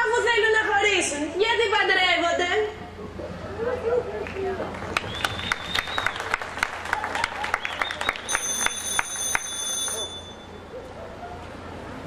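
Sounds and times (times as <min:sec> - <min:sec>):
audience clapping: 0:04.2 - 0:10.0
thin high steady tone: 0:08.3 - 0:10.8.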